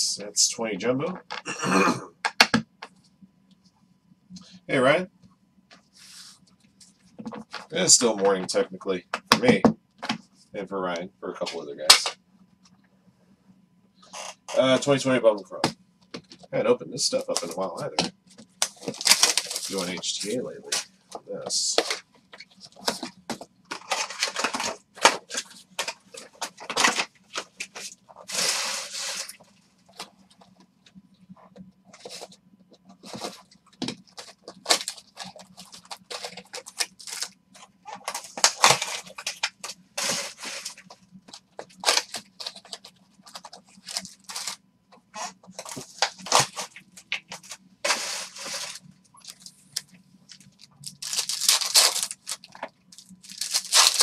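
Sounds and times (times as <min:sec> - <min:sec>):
faint low hum: 0:00.0 - 0:54.0
card pack wrappers tearing: 0:18.6 - 0:20.9, 0:23.7 - 0:29.4, 0:33.0 - 0:41.0, 0:41.6 - 0:54.0.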